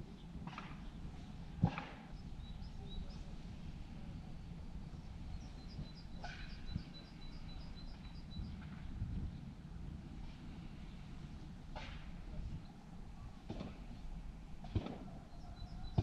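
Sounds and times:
songbird singing: 0.0 - 9.5, 15.0 - 16.0
low outdoor rumble: 0.0 - 16.0.

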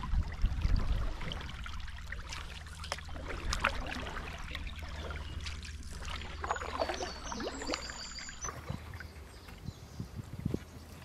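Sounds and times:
paddle stroking through water: 0.0 - 9.6.

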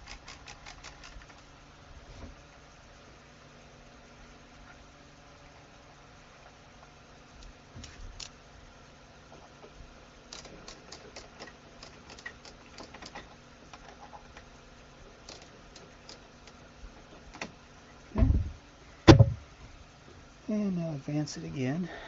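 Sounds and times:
small screws clicking on metal: 0.0 - 1.4, 10.3 - 13.3, 15.3 - 16.6
heavy low thump: 18.2 - 19.4.

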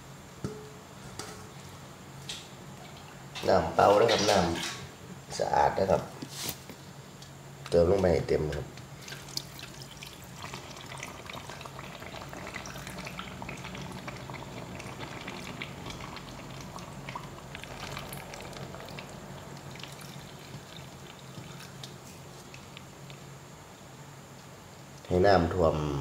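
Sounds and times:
steady low hum: 0.0 - 26.0
small crackles: 6.3 - 23.3
water pouring and bubbling in jar: 9.0 - 22.8.

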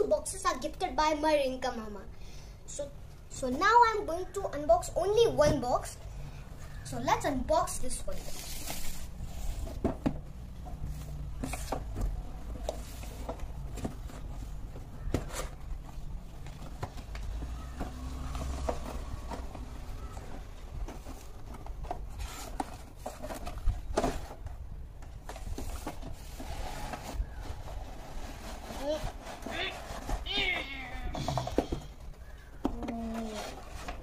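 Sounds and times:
cardboard box rustles and scrapes: 7.9 - 24.5, 25.2 - 31.6, 33.0 - 34.0.

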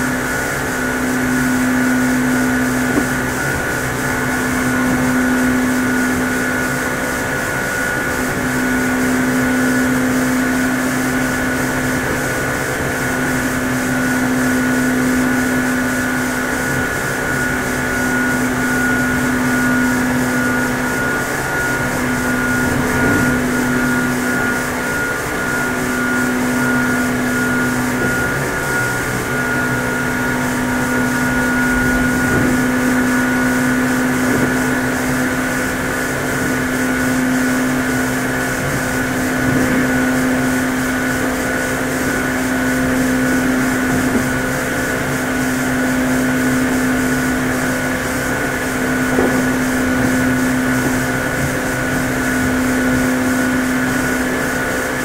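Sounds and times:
train motor hum: 0.0 - 7.0, 19.3 - 45.8, 47.1 - 53.4
wheels rumbling on rails: 26.4 - 41.3, 47.4 - 53.0.

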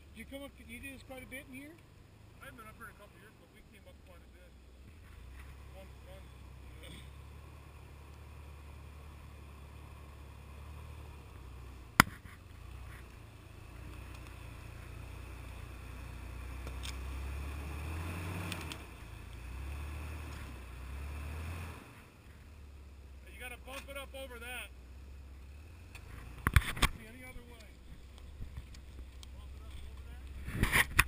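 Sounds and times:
engine running at low revs: 0.0 - 31.0
sharp crack: 11.9 - 13.2.

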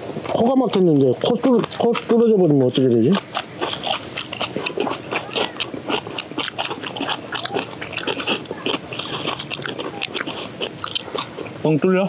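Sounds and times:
wet chewing crunches: 0.3 - 11.8
mouth smacks: 1.2 - 2.1, 3.1 - 11.6.

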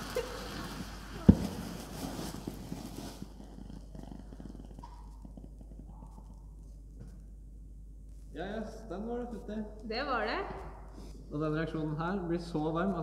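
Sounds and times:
thermite rushing hiss: 0.0 - 3.2
faint crackles: 0.0 - 7.4.

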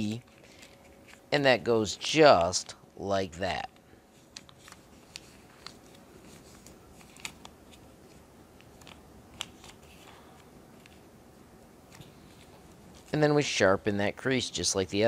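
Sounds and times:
paper crackling and rustling: 4.1 - 10.2.

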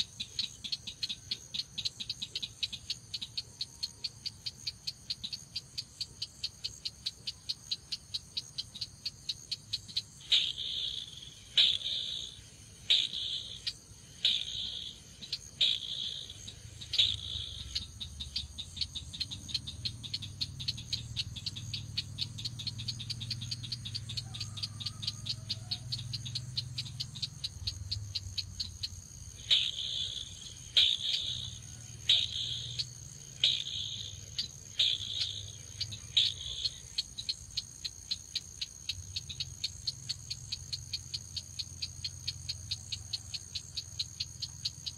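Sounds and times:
crake calling: 9.6 - 37.8.

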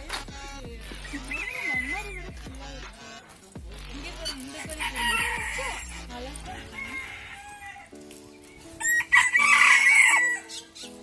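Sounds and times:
rooster crowing: 1.2 - 2.0, 4.7 - 8.0, 8.8 - 10.6.

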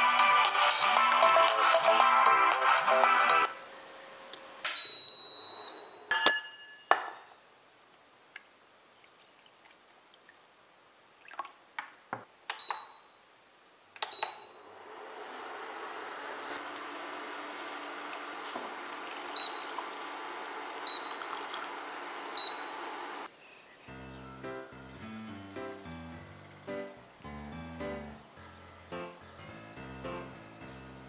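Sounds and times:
electronic beeps: 0.4 - 3.5
induction cooktop whirring: 14.4 - 23.3.

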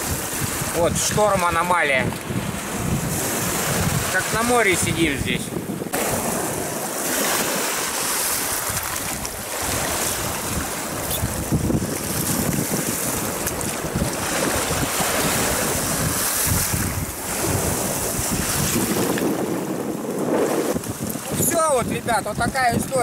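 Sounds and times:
waves washing on pebbles: 0.0 - 23.0
wind buffeting microphone: 0.0 - 23.0.

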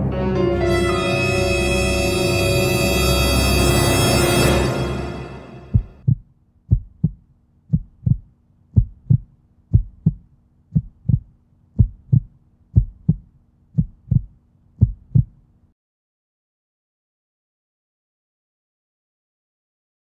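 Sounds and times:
heartbeat thumps: 5.7 - 15.4.

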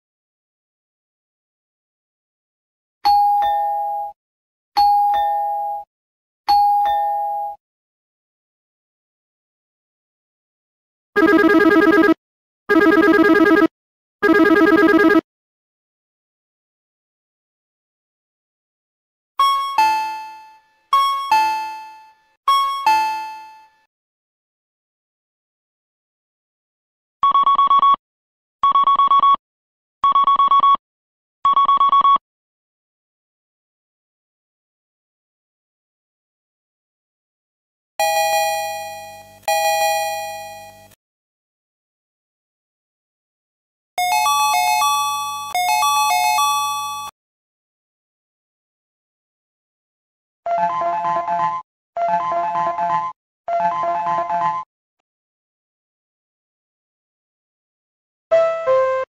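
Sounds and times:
electronic two-tone door chime: 38.0 - 40.9, 44.0 - 47.1.

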